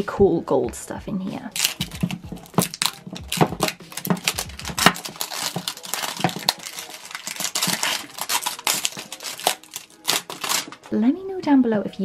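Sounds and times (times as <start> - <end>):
plastic shrink-wrap crinkling: 1.5 - 10.9.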